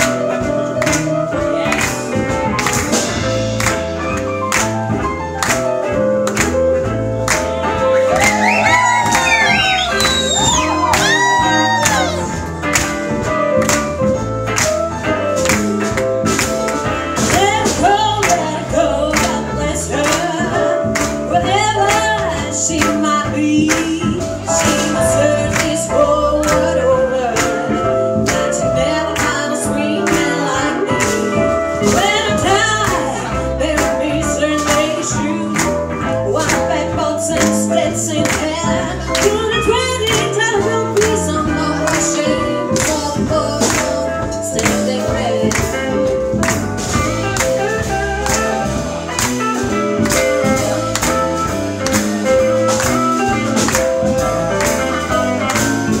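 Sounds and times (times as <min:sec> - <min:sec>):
live band playing: 0:00.0 - 0:56.0
woman singing: 0:08.0 - 0:12.4, 0:17.2 - 0:48.9.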